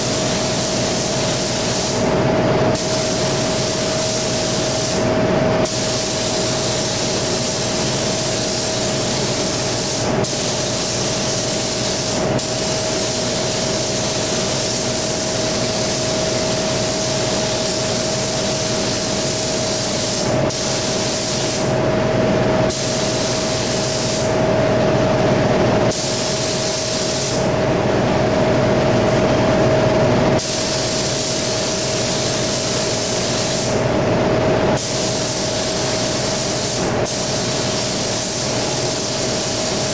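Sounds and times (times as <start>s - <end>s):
paint spray gun hissing: 0.0s - 2.1s, 2.8s - 21.8s, 22.7s - 24.4s, 25.9s - 27.5s, 30.4s - 33.8s, 34.8s - 39.9s
exhaust fan humming: 0.0s - 39.9s.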